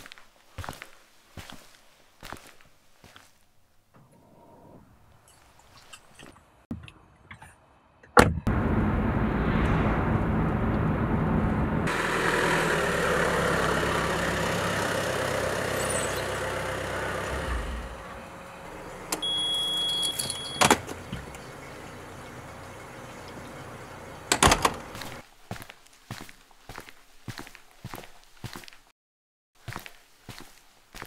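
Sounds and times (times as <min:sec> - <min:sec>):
van engine driving past: 0:08.5 - 0:19.8, 0:20.9 - 0:25.2
high electronic beep: 0:15.7 - 0:16.8, 0:19.2 - 0:20.7
van door shutting: 0:18.7 - 0:21.6, 0:22.8 - 0:25.2.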